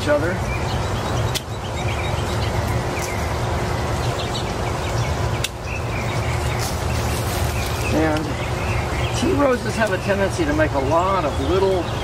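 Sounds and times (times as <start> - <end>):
pruners snipping: 5.4 - 5.6.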